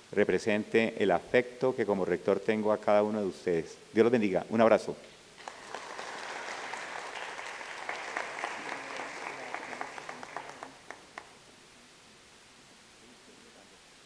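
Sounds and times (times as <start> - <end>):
audience applauding: 5.4 - 11.4.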